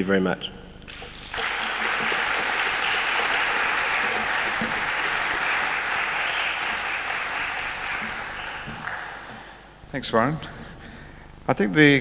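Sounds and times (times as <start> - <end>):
audience applauding: 0.9 - 9.8.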